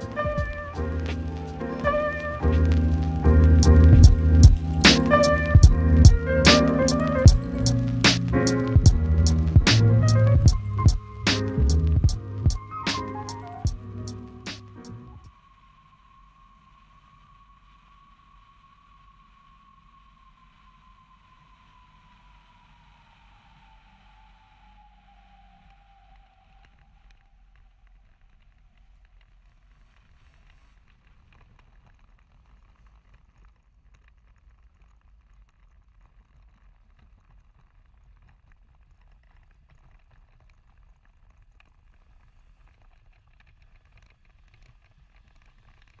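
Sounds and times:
faint falling tone: 0.0s - 15.3s.

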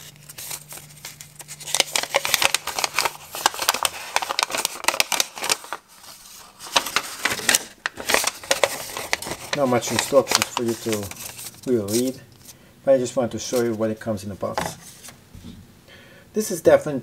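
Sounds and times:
paper rustling and crinkling: 0.0s - 12.6s, 13.4s - 15.2s.

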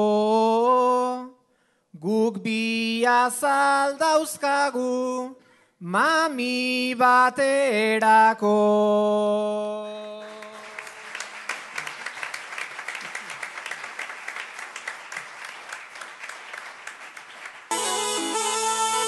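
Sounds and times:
audience applauding: 10.0s - 19.0s.

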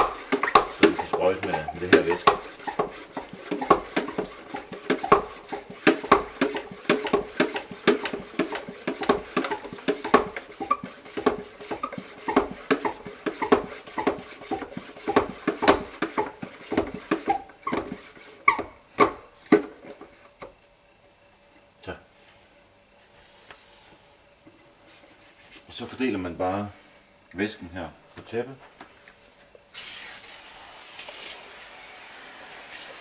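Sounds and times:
hand pump strokes: 0.0s - 18.7s.

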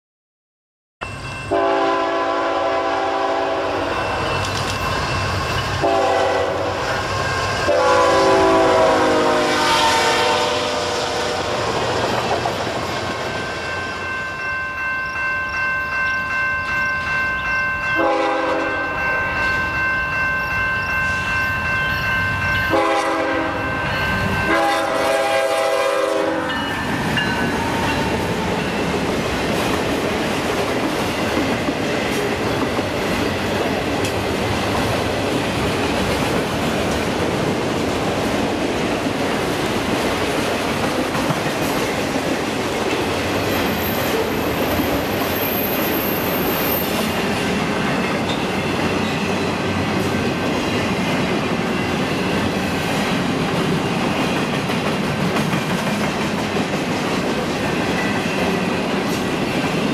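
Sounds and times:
locomotive air horn blasts: 1.5s - 3.9s, 5.8s - 6.8s, 7.7s - 11.6s, 18.0s - 18.8s, 22.7s - 23.7s, 24.5s - 26.6s
train wheels clicking over rail joints: 4.3s - 5.8s, 11.7s - 13.3s, 26.8s - 59.9s.

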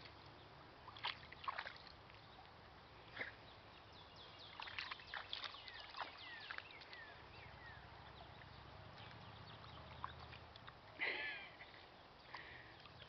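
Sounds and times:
dog paws splashing in water: 0.9s - 2.5s, 4.4s - 11.0s.

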